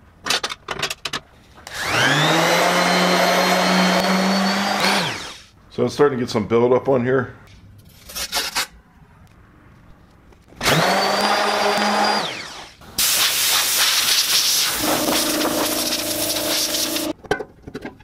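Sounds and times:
orbital sander running: 0:01.7 - 0:05.5, 0:10.6 - 0:12.8, 0:14.6 - 0:17.1
sander hissing on metal: 0:11.9 - 0:17.2.

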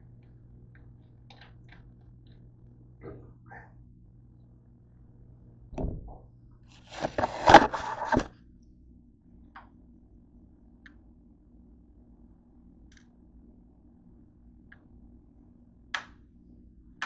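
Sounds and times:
faint room hum: 0:00.0 - 0:17.0
scraping and rustling: 0:06.8 - 0:08.3.

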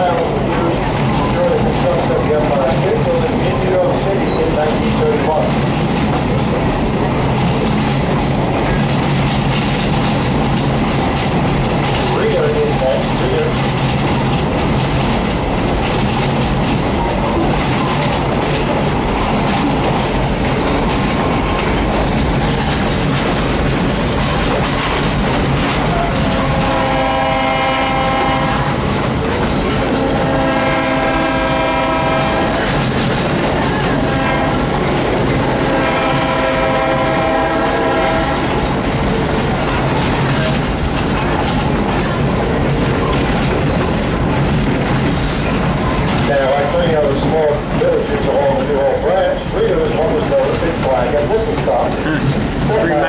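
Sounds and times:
train wheels rumbling on rail: 0:00.0 - 0:53.0
locomotive horn blasts: 0:26.3 - 0:28.8, 0:29.9 - 0:32.7, 0:34.0 - 0:34.7, 0:35.6 - 0:38.5.

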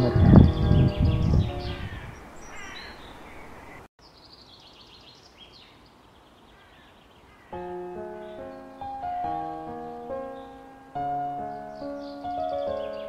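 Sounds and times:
soft piano music: 0:00.0 - 0:01.9, 0:07.5 - 0:13.0
birds chirping: 0:00.0 - 0:13.0.

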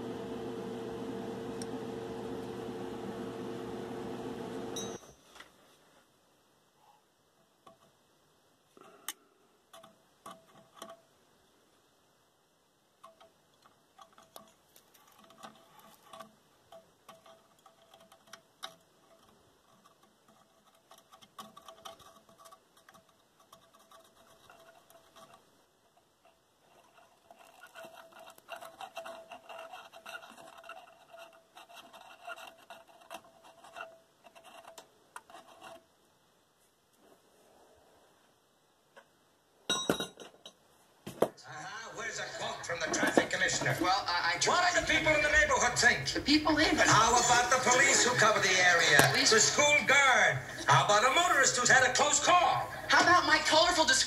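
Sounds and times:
steady hum: 0:00.0 - 0:05.0.

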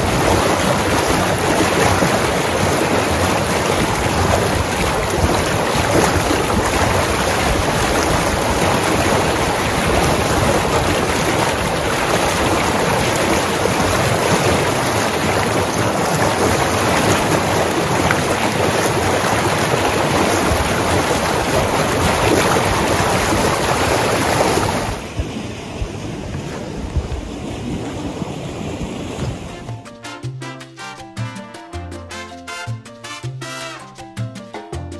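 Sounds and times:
water rushing through ditch: 0:00.0 - 0:29.8.

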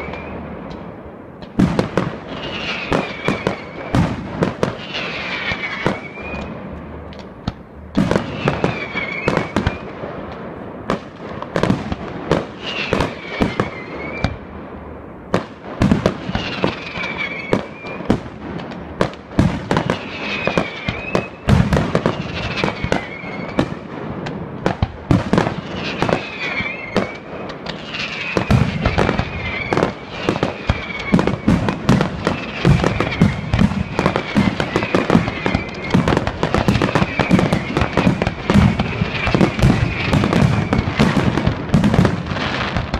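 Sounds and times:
fireworks bangs and crackles: 0:00.0 - 0:42.9.

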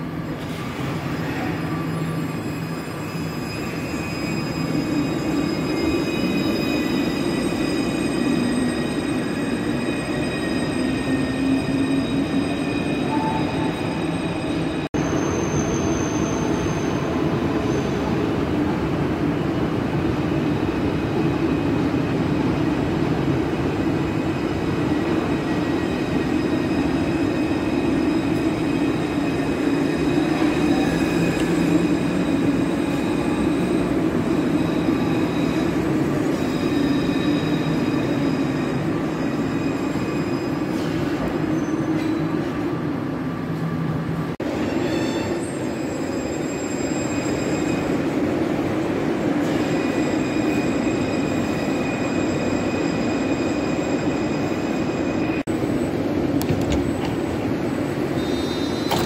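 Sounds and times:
tram wheels rumbling on rails: 0:47.4 - 0:59.0.

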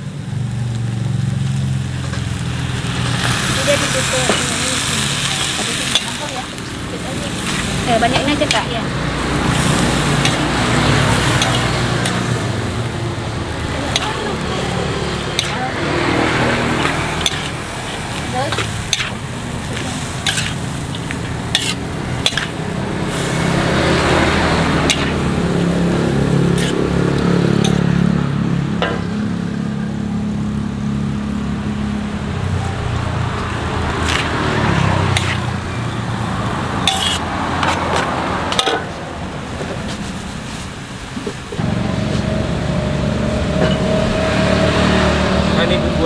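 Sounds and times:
steady sizzle: 0:00.0 - 0:27.4
motor engine humming: 0:00.3 - 0:38.2
metal spatula scraping a wok: 0:04.1 - 0:06.4, 0:07.1 - 0:08.8, 0:09.4 - 0:12.5, 0:13.9 - 0:25.7, 0:26.4 - 0:26.8, 0:34.0 - 0:34.5, 0:35.1 - 0:35.6, 0:36.8 - 0:38.9.

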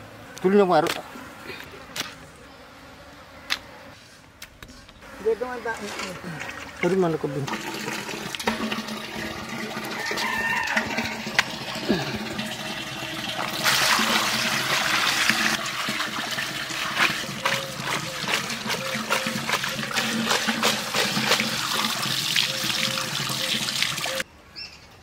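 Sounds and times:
water splashing through basket: 0:07.5 - 0:24.2.

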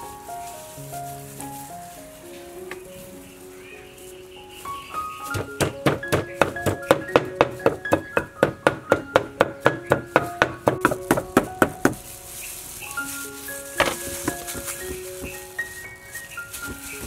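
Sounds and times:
wooden pestle pounding in mortar: 0:05.3 - 0:12.0.

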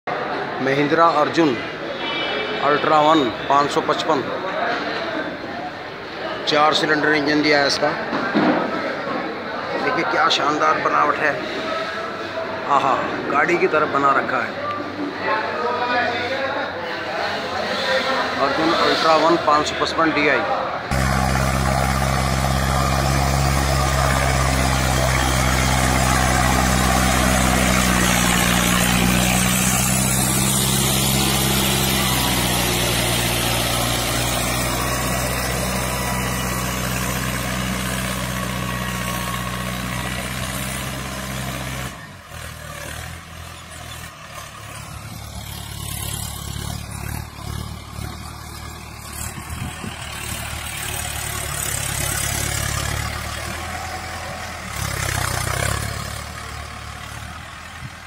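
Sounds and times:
tractor diesel engine running: 0:20.9 - 0:58.0.

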